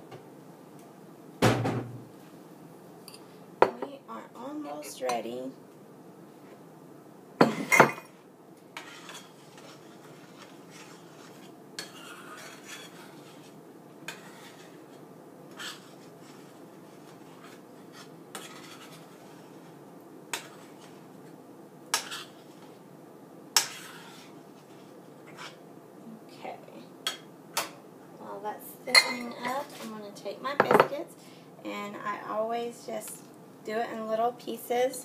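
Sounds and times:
cookware clattering: 7.4s - 8.1s, 28.9s - 29.6s
metal spoon scraping skillet: 8.8s - 19.7s, 20.3s - 21.0s, 21.9s - 22.7s, 23.6s - 25.6s.

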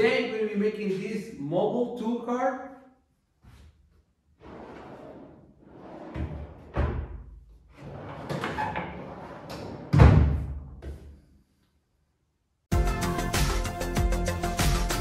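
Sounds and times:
wooden drawers sliding: 4.4s - 10.2s.

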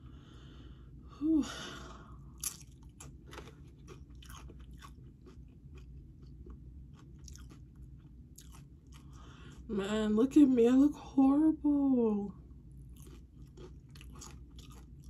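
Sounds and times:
chewing crunchy chips: 2.4s - 9.7s, 12.9s - 15.0s.

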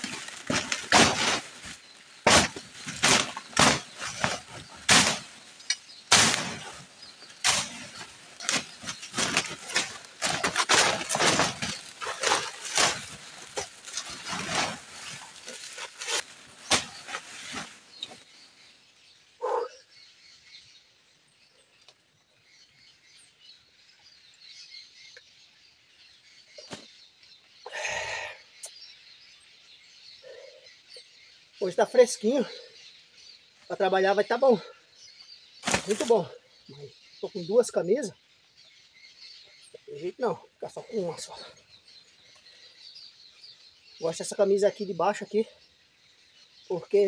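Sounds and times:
rustle of vegetation: 0.0s - 19.1s, 26.0s - 47.0s
brush hook chopping weeds: 0.4s - 1.4s, 2.2s - 6.8s, 7.4s - 14.7s
faint bird calls: 19.4s - 20.1s, 26.5s - 38.2s.

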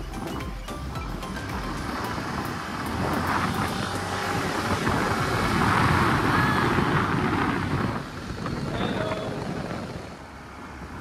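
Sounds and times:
scooter engine and tyre noise: 0.0s - 11.0s
wind rushing over microphone: 0.0s - 11.0s.

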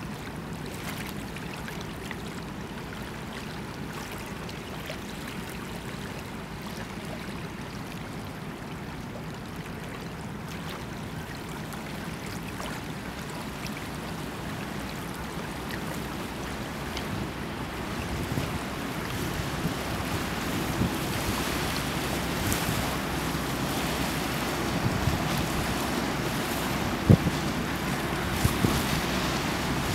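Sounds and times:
water rushing and splashing: 0.0s - 29.9s
wind on microphone: 17.0s - 29.9s.

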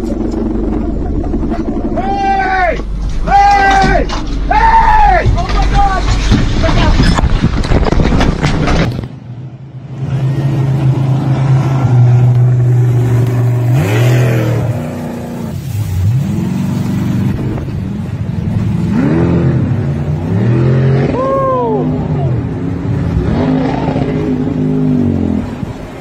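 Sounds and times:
boat engine revving: 0.0s - 6.2s, 9.9s - 26.0s.

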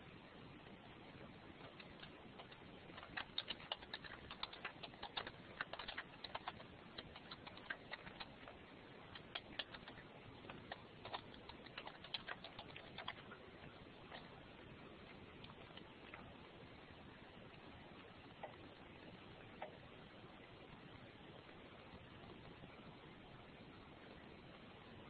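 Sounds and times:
typing on computer keyboard: 1.6s - 13.4s.

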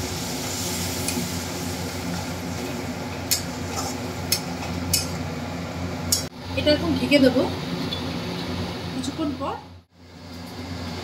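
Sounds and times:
curry sizzling in a pan: 0.0s - 5.2s.

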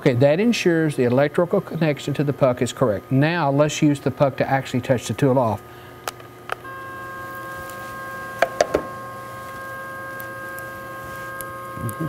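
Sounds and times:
cnc router motor whining: 6.5s - 12.0s.

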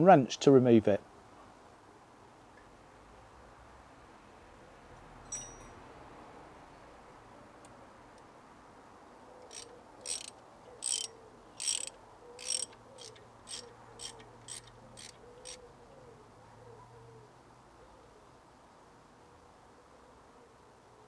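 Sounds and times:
ratchet wrench clicking: 9.5s - 15.6s.

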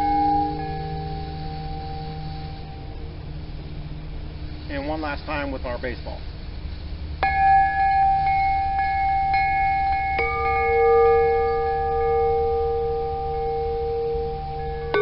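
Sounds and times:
lower-pitched metal bell ringing: 0.0s - 4.5s, 7.2s - 15.0s
metal bell ringing: 7.2s - 15.0s.

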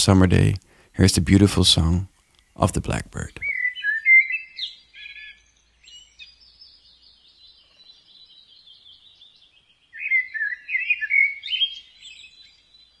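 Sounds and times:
blackbird singing: 2.2s - 13.0s
high bird twittering: 3.2s - 13.0s.

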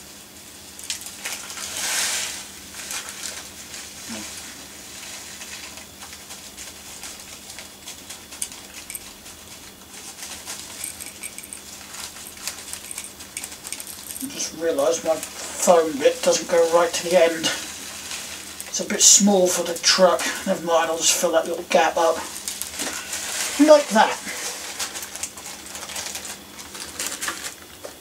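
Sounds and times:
plastic bag crinkling: 4.9s - 18.8s, 22.2s - 27.9s.

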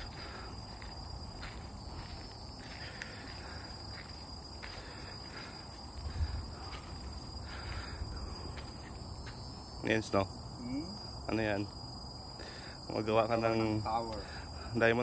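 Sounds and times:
insects calling: 0.0s - 15.0s.

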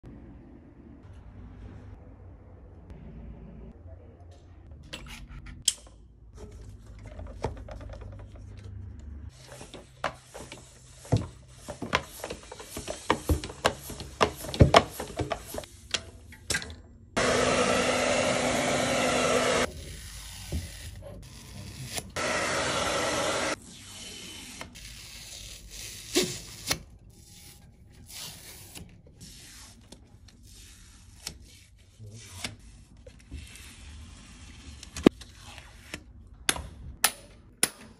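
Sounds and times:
hair dryer blowing: 17.2s - 19.7s, 22.2s - 23.6s.

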